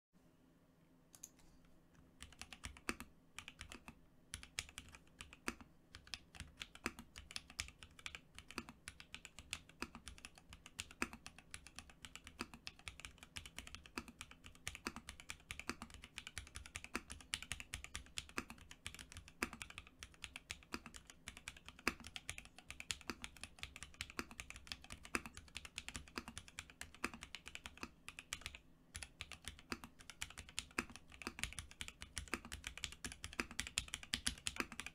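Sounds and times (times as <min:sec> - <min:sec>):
mechanical keyboard typing: 0:02.2 - 0:34.9.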